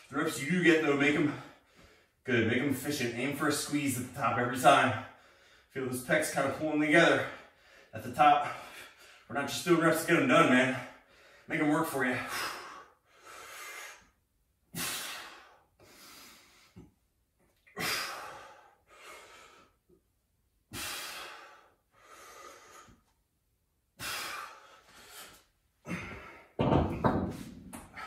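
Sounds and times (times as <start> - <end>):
person breathing hard: 5.1 - 5.7, 12.2 - 14.2, 17.8 - 19.8, 20.7 - 23.1, 24.0 - 26.6.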